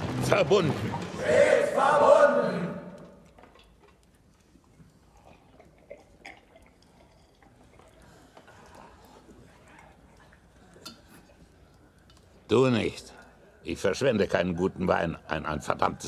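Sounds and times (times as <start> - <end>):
people sipping and swallowing: 2.9 - 13.7.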